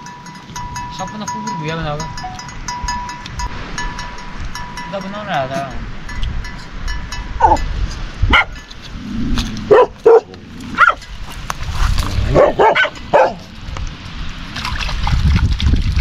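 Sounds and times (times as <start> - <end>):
dog barking: 8.3 - 8.6, 9.7 - 11.0, 12.3 - 13.5.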